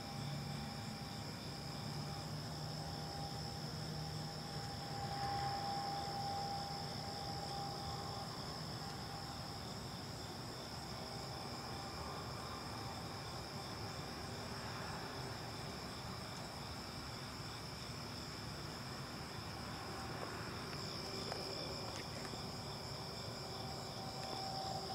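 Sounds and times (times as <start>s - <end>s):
insects trilling: 0.0s - 24.9s.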